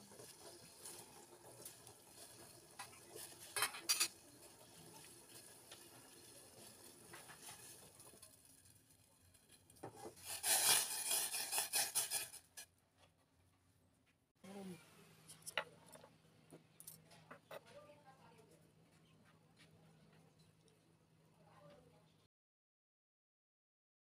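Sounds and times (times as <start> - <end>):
metal spoon clinking saucepan: 2.8 - 4.2.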